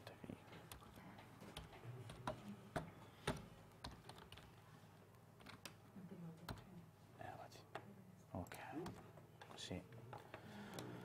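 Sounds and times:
faint keyboard clicks: 0:00.0 - 0:05.8.

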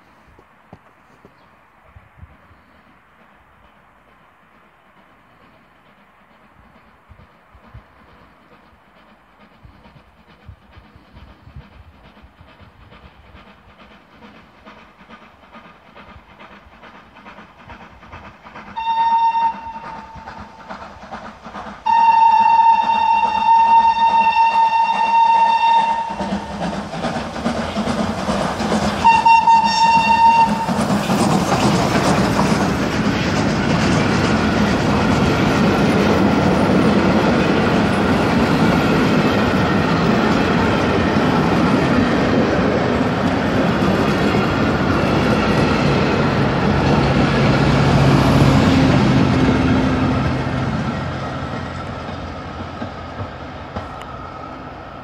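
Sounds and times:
rumble of train wheels: 0:00.0 - 0:55.0
rush of steam: 0:00.0 - 0:55.0
steam locomotive whistle: 0:18.7 - 0:20.6, 0:21.8 - 0:26.6, 0:29.0 - 0:30.9.

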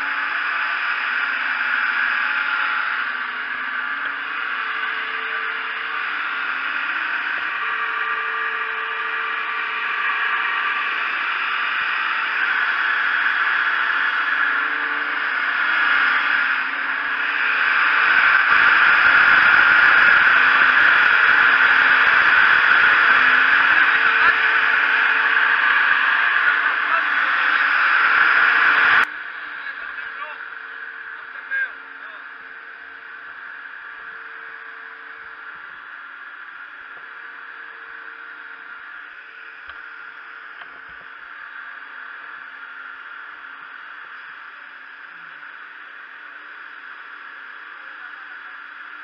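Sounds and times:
faint motor hum: 0:00.0 - 0:49.0
ventilator air rushing: 0:03.6 - 0:30.4.

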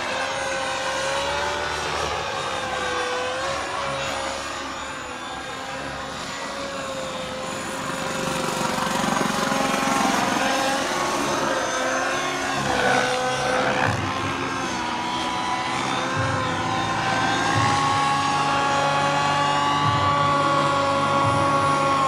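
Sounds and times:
model helicopter turbine whine: 0:00.0 - 0:22.0.

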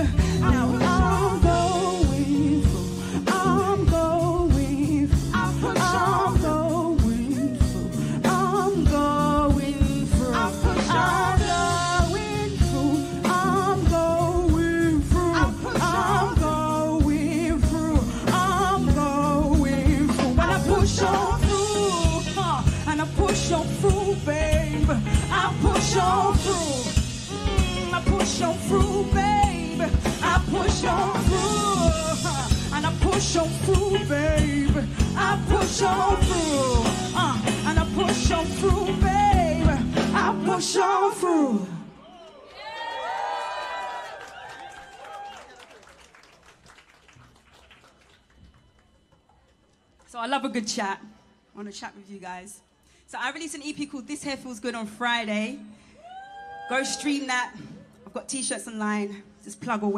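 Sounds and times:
live band music: 0:00.0 - 0:41.3
bass guitar: 0:00.0 - 0:41.7
person singing wordless vocal: 0:00.0 - 0:42.0.

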